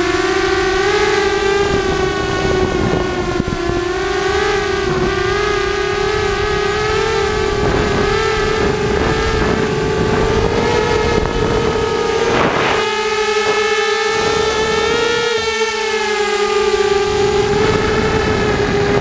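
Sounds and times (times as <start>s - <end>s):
quadcopter propellers whining: 0.0s - 19.0s
rumbling wind noise: 0.0s - 19.0s.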